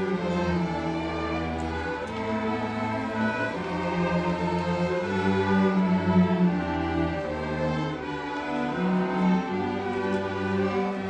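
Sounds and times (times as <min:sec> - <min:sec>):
string orchestra playing chords: 0:00.0 - 0:11.0.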